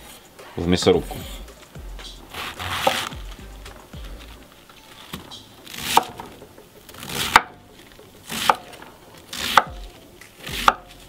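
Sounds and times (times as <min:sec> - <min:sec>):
knife crunching through cabbage: 0:02.3 - 0:03.4, 0:04.0 - 0:11.0.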